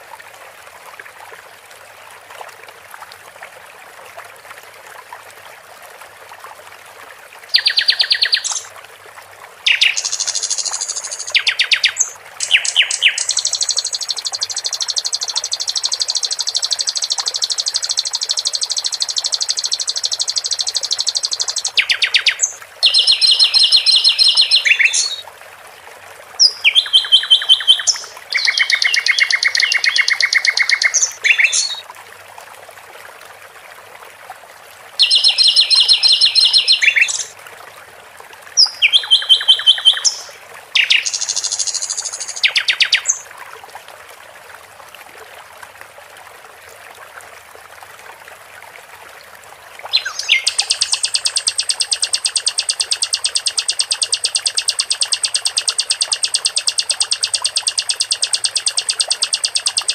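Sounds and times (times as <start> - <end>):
water trickling: 0.0 - 59.9
songbird trilling: 7.6 - 8.7, 9.7 - 25.2, 26.4 - 31.8, 35.0 - 37.3, 38.6 - 43.2, 49.9 - 59.9.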